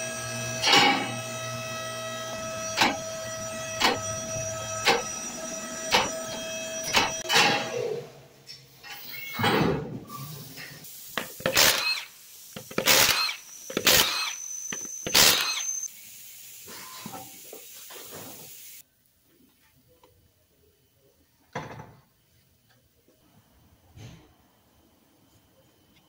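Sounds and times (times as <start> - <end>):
impact wrench bursts: 11.1 - 15.9.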